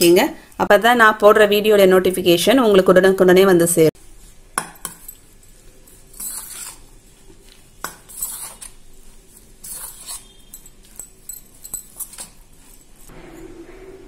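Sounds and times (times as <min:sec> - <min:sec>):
metal spoon scraping a steel bowl: 0:04.8 - 0:06.9, 0:07.8 - 0:14.0.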